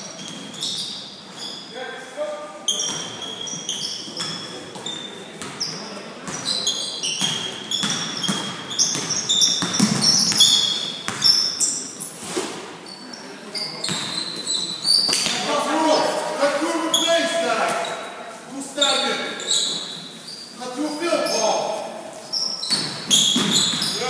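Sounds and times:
sneaker squeaks on hardwood: 0:00.0 - 0:01.8, 0:02.6 - 0:16.2, 0:16.8 - 0:18.1, 0:18.8 - 0:24.0
voices echoing in gym: 0:00.0 - 0:24.0
basketball dribbling: 0:07.2 - 0:11.4.

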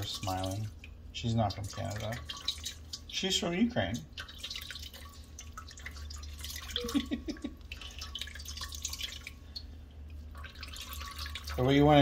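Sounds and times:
liquid dripping into metal bowl: 0:00.0 - 0:12.0.

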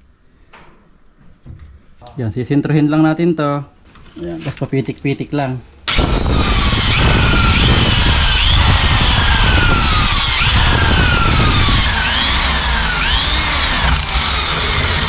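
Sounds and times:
power drill boring into wood: 0:05.9 - 0:15.0.

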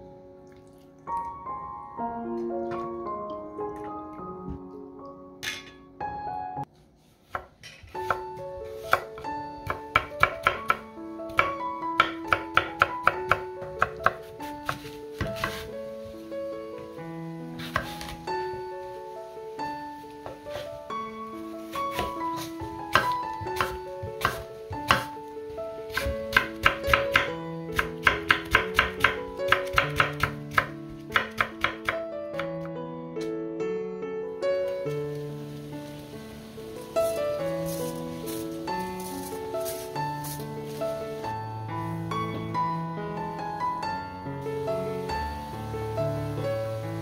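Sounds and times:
knife chopping on wooden board: 0:07.3 - 0:08.2, 0:08.9 - 0:15.7, 0:17.6 - 0:18.1, 0:21.9 - 0:25.1, 0:25.9 - 0:32.5.

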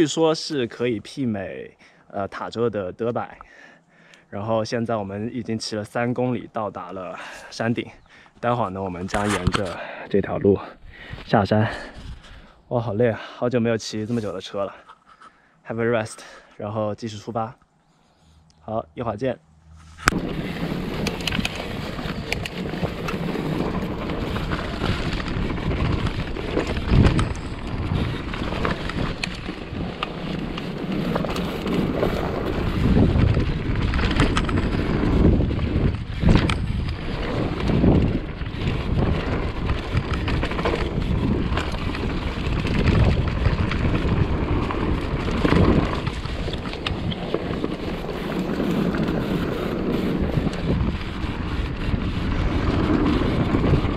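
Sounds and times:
bike tyre noise: 0:19.6 - 0:53.9
wind rushing over microphone: 0:19.7 - 0:53.9
bike knocking over rough ground: 0:20.1 - 0:53.9.

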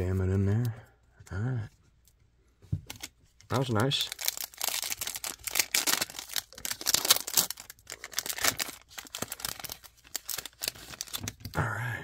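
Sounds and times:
foil wrapper crinkling: 0:02.9 - 0:11.5.

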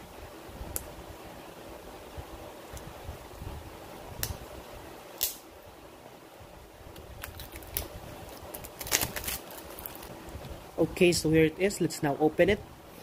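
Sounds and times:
faint fan hum: 0:00.0 - 0:13.0
plastic wrapper crackling: 0:07.2 - 0:10.2.

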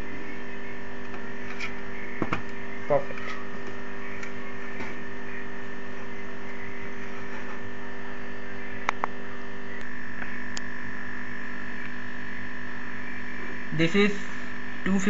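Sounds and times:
steady electrical hum: 0:00.0 - 0:15.0.

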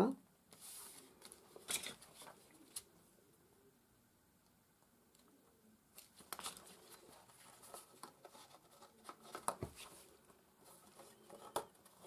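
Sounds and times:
paper rustling and sliding: 0:00.5 - 0:02.9.

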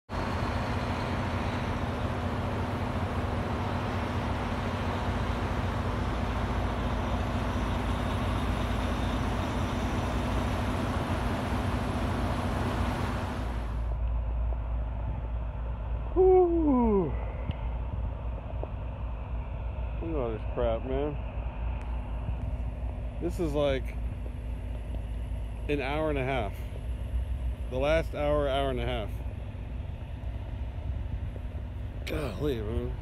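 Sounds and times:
highway traffic passing: 0:00.1 - 0:16.1
man's drawn out voice: 0:32.0 - 0:33.0.

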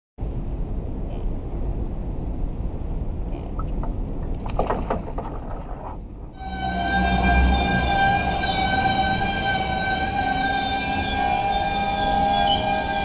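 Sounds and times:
wind rumble on microphone: 0:00.2 - 0:10.2
knocks on boat: 0:03.7 - 0:06.0.

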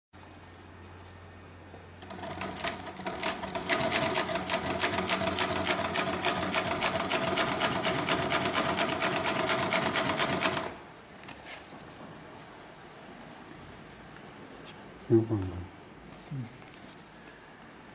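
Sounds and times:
sewing machine stitching: 0:02.0 - 0:10.8.

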